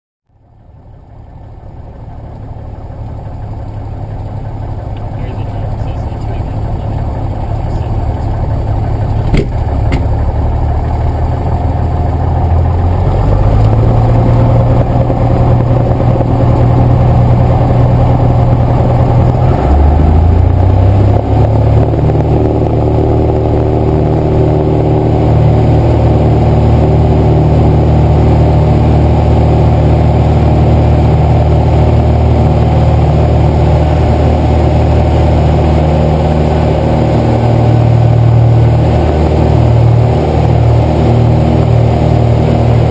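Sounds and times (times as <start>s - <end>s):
propeller plane engine drone: 0.3s - 42.9s.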